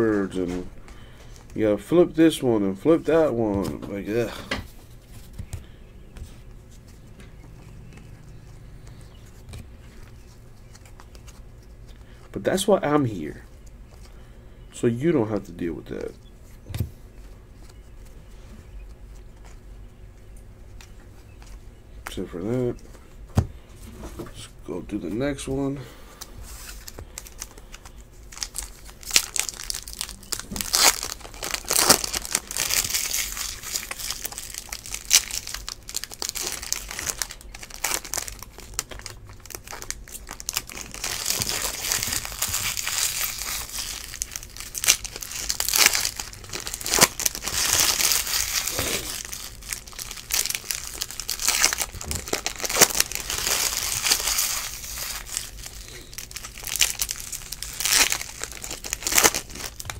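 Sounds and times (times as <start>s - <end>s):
foil wrappers tearing and crinkling: 26.5s - 59.9s.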